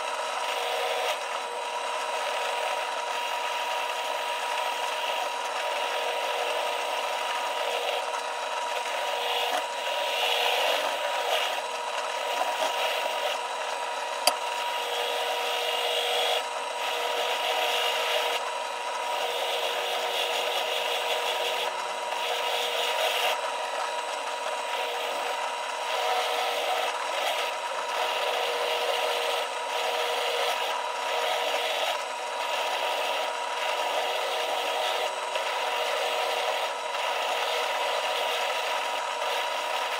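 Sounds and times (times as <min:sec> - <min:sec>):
drill press motor hum: 0:00.0 - 0:39.9
sharp click: 0:14.2 - 0:14.5.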